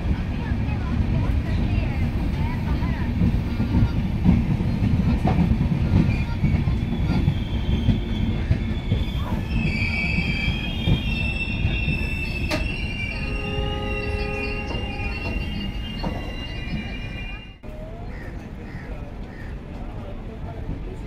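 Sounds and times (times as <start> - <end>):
train wheels rumbling on rails: 0.0 - 21.0
high-pitched wheel squeal: 6.2 - 17.6.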